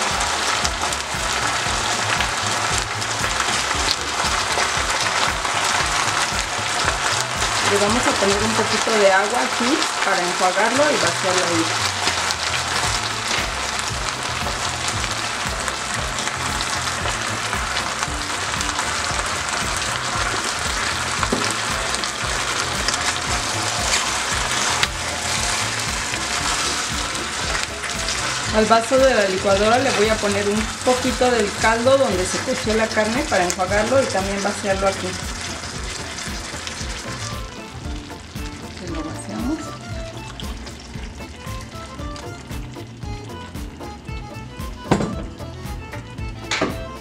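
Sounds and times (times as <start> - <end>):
ribs sizzling in a frying pan: 0.0 - 47.0.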